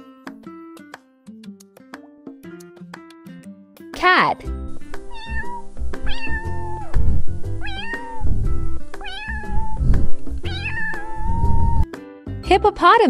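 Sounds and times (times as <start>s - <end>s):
background music: 0.0s - 13.0s
cat meowing: 5.0s - 11.9s.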